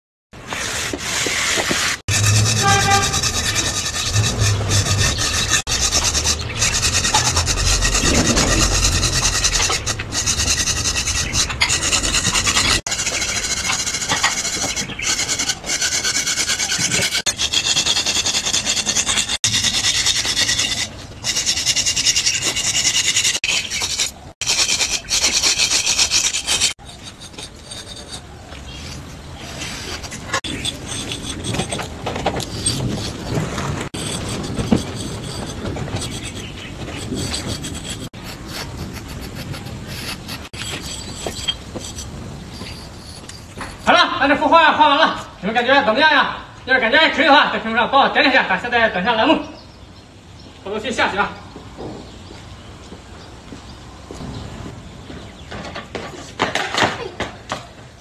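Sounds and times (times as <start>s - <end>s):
drawing stick scratching on concrete: 0.6s - 31.8s, 33.9s - 43.9s.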